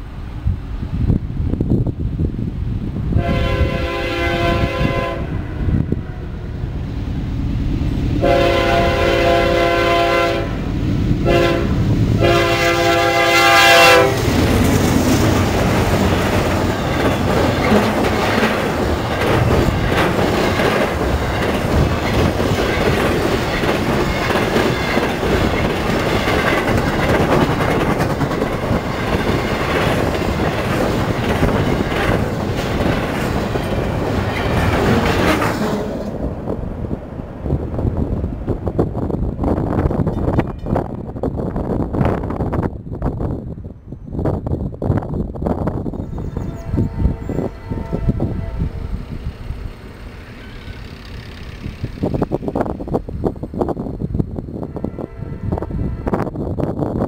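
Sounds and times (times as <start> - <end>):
locomotive air horn blasts: 3.2 - 6.2, 8.2 - 14.3, 46.4 - 49.1, 54.7 - 56.2
train wheel clatter: 12.2 - 36.5, 37.7 - 43.2, 48.9 - 54.3.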